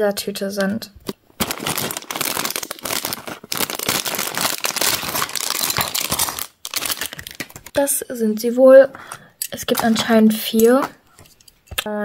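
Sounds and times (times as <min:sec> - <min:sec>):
plastic bag crinkling: 0:01.4 - 0:07.8.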